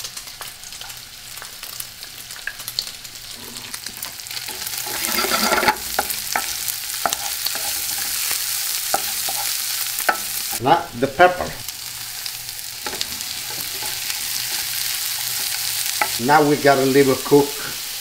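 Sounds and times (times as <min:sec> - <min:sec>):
food sizzling in a skillet: 0:00.0 - 0:18.0
wooden spoon scraping a pan: 0:03.2 - 0:10.6, 0:12.8 - 0:16.2.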